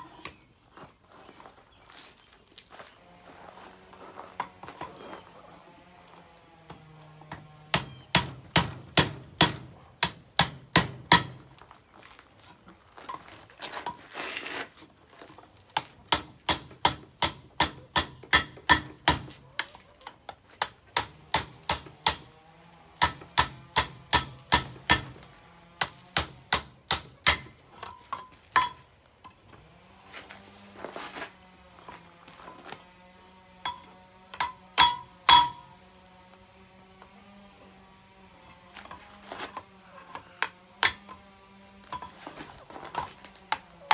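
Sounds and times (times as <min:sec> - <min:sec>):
hammer striking metal on anvil: 0:26.2 - 0:28.9, 0:33.6 - 0:35.8, 0:40.4 - 0:41.2.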